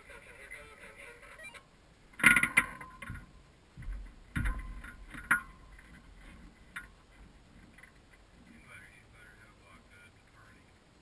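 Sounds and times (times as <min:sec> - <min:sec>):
metal frame knocks and rattles: 0:02.2 - 0:08.6.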